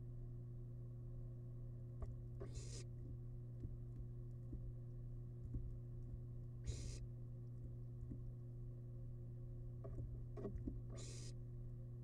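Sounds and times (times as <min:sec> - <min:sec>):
low electrical hum: 0:00.0 - 0:12.0
owl chicks hissing: 0:02.4 - 0:02.9, 0:06.6 - 0:07.1, 0:11.0 - 0:11.4
faint taps and ticks: 0:05.4 - 0:06.3, 0:07.6 - 0:08.3.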